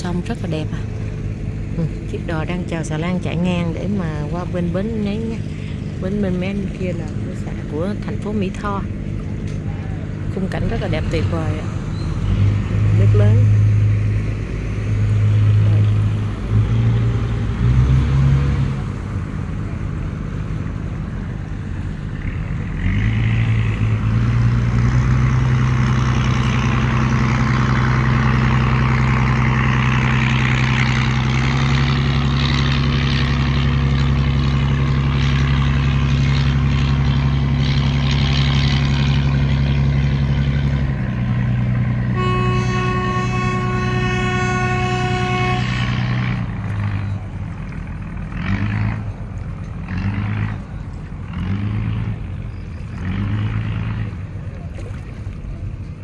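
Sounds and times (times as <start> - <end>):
boat engine droning: 0.0 - 56.0
boat horn blowing: 41.5 - 47.2.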